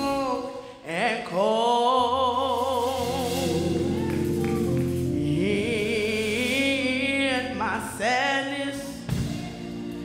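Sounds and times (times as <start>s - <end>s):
woman singing gospel: 0.0s - 10.0s
held instrument chords: 3.0s - 8.0s.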